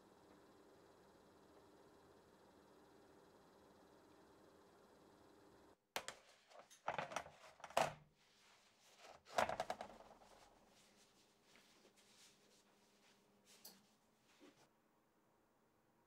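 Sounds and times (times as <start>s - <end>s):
faint oven hum: 0.0s - 16.0s
baking sheet clattering on table: 6.0s - 8.0s, 9.1s - 10.3s.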